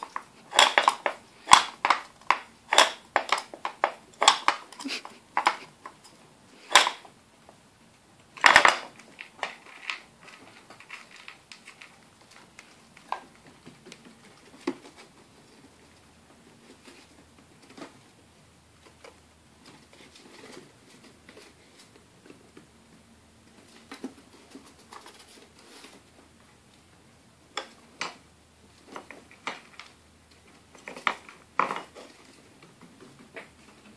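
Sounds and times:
wooden puzzle pieces clicking: 0.0s - 6.0s, 6.7s - 7.0s, 8.4s - 12.0s.

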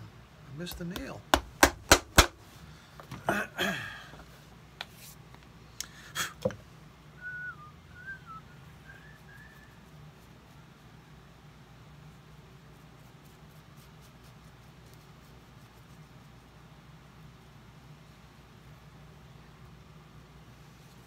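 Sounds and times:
hammer striking shoe heel: 0.7s - 2.4s
person whistling: 7.2s - 9.8s.

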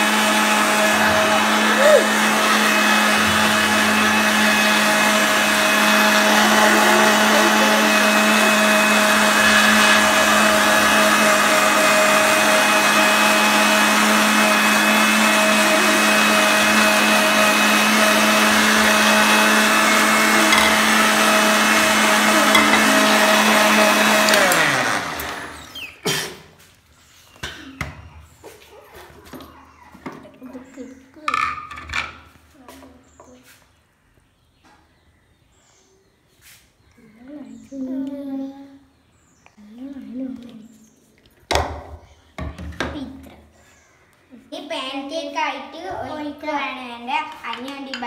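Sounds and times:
mixer grinder running: 0.0s - 26.0s.

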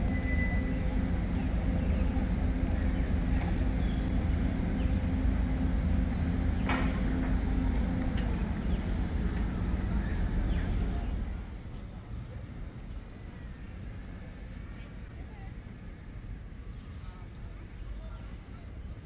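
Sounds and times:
vehicle engine idling: 0.0s - 11.7s.

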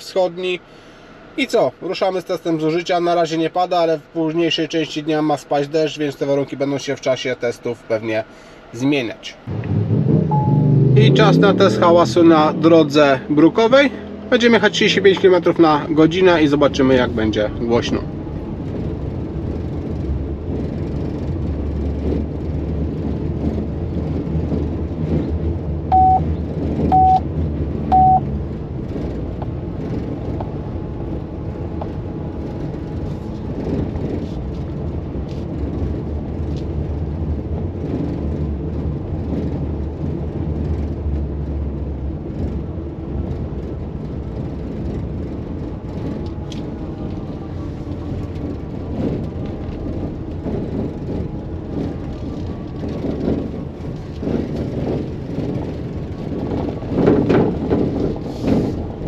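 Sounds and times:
short beeps: 10.3s - 10.7s, 25.9s - 26.2s, 26.9s - 27.2s, 27.9s - 28.2s.

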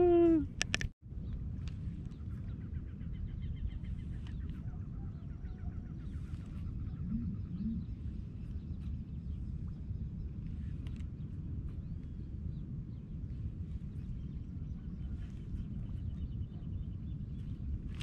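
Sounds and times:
low rumble: 0.0s - 18.0s
distant bird calls: 2.1s - 10.8s.

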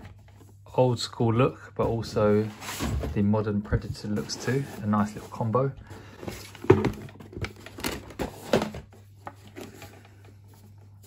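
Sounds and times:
cardboard rustling: 1.9s - 11.0s.

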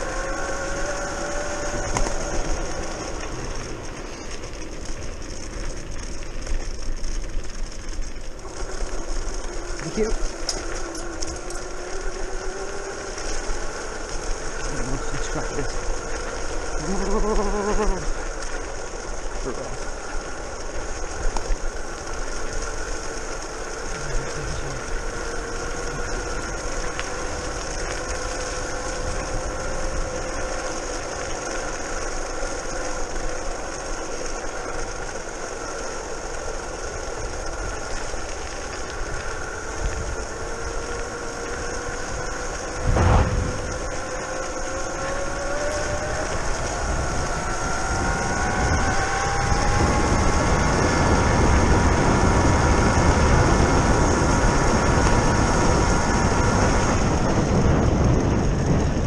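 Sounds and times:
electric motor whine: 0.0s - 59.0s
single thump: 42.9s - 43.5s.

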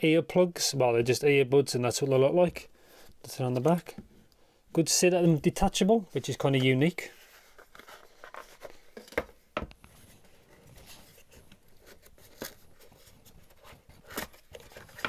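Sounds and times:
cardboard and foam rustling: 6.2s - 15.0s.

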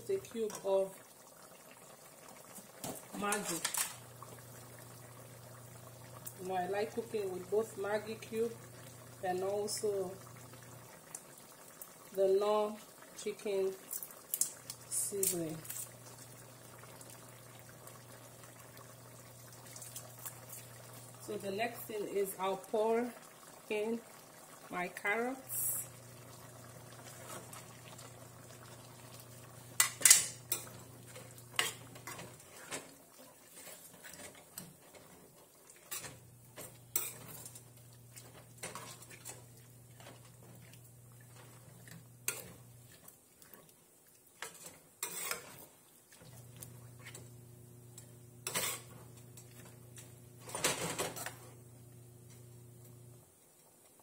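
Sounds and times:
spoon and spatula scraping a pan: 3.2s - 4.0s, 29.8s - 35.2s, 35.8s - 40.3s, 41.3s - 43.1s, 44.4s - 45.7s, 48.4s - 49.7s.

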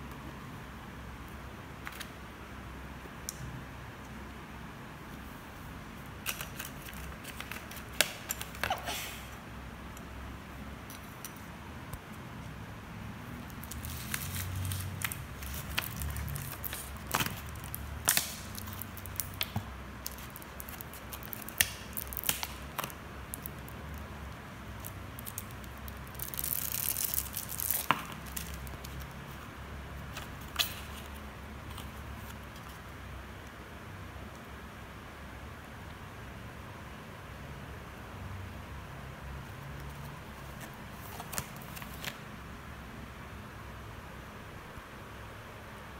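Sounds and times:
plastic crinkling: 13.4s - 24.1s, 24.7s - 29.5s
plastic packaging clicks and taps: 15.0s - 23.5s.

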